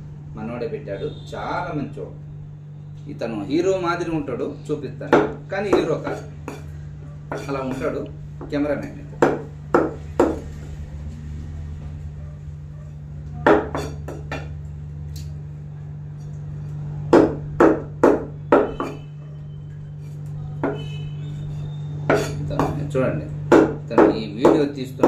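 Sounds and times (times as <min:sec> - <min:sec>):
steady low hum: 0:00.0 - 0:25.0
cleaver chopping on wooden block: 0:05.1 - 0:06.7, 0:09.2 - 0:10.5, 0:13.5 - 0:14.5, 0:17.1 - 0:19.0, 0:22.1 - 0:22.9, 0:23.5 - 0:24.7.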